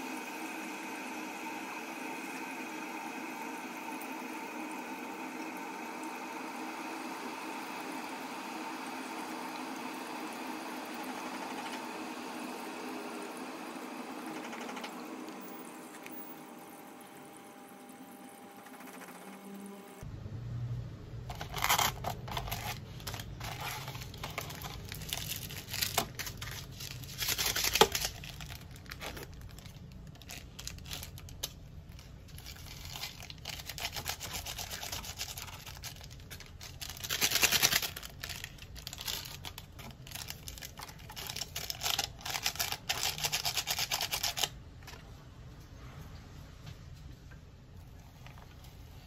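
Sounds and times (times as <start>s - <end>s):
sachet shaking: 21.3s - 44.6s
seasoning sachet tearing: 21.3s - 44.6s
packaging crinkling: 21.3s - 45.0s
paper and foil lid peeling: 21.3s - 45.0s.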